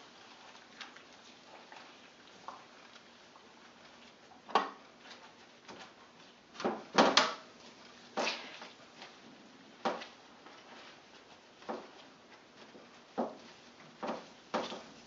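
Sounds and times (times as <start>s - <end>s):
wet cloth squelching on a tray: 0.0s - 9.2s.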